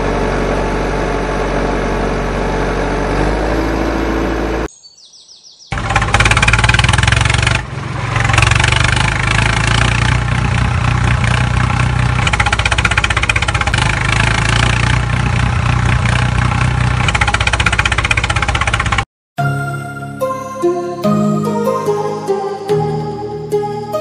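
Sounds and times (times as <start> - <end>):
tractor engine chugging: 5.7 - 19.0.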